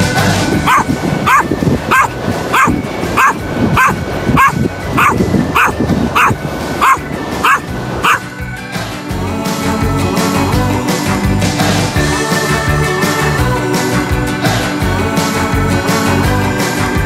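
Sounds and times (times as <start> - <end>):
dog barking: 0.7 - 8.2.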